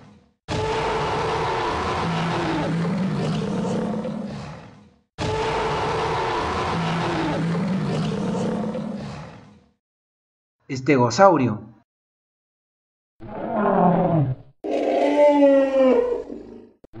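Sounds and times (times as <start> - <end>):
low rasping dinosaur roar: 0.5 - 9.7, 13.2 - 16.8.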